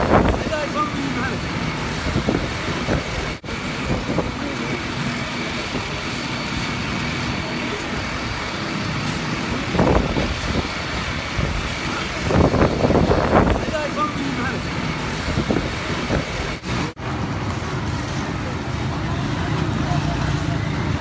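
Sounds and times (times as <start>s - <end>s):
engine humming: 0.0s - 21.0s.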